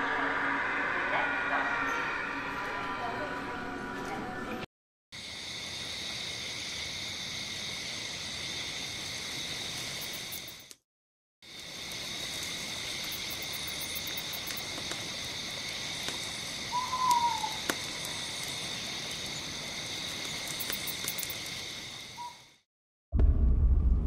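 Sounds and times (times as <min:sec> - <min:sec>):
insects chirring: 0:05.2 - 0:10.8, 0:11.4 - 0:22.6.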